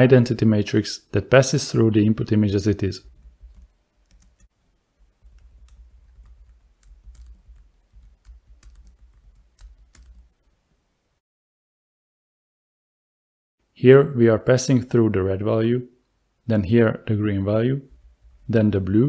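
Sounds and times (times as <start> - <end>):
computer keyboard key clicks: 5.3 - 10.2.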